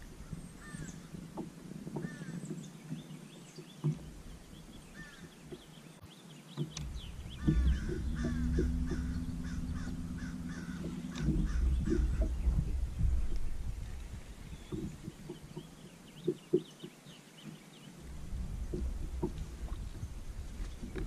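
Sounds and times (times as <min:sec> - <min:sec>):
steady low hum: 0:06.7 - 0:16.5, 0:17.9 - 0:21.0
low rumble: 0:06.8 - 0:15.9, 0:18.0 - 0:21.0
crow cawing: 0:07.4 - 0:12.3.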